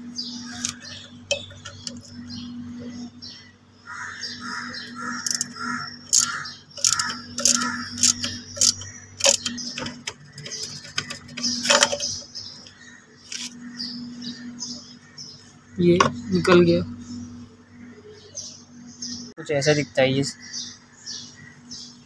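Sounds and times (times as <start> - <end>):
steady low hum: 0.0 - 22.0
metal clicks and taps: 5.2 - 12.3.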